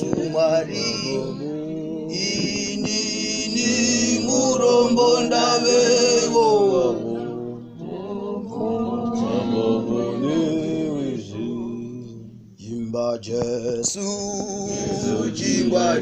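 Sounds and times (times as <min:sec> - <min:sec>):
group singing gospel in harmony: 0:00.0 - 0:16.0.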